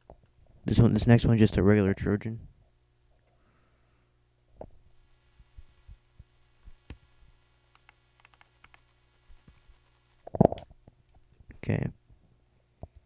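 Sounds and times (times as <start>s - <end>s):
low steady hum: 0.0s - 13.0s
computer mouse and keyboard clicks: 7.7s - 9.7s.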